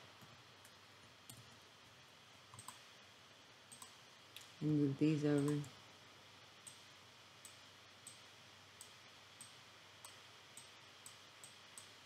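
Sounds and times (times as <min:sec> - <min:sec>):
low steady hiss: 0:00.0 - 0:12.0
computer mouse clicking: 0:00.2 - 0:01.6, 0:02.5 - 0:02.9, 0:03.7 - 0:04.6, 0:05.4 - 0:05.8, 0:06.6 - 0:12.0.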